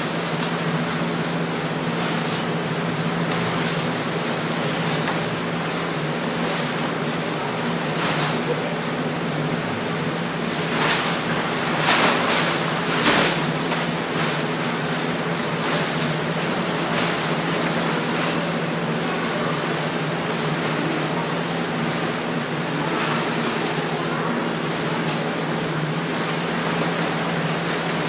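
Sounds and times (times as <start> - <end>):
paper costumes rustling: 10.5 - 18.6.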